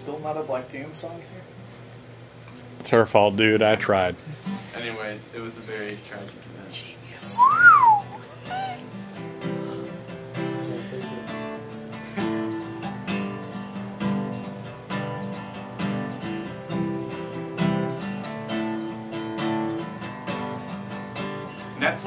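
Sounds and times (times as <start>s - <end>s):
acoustic guitar strumming chords: 7.4s - 22.0s.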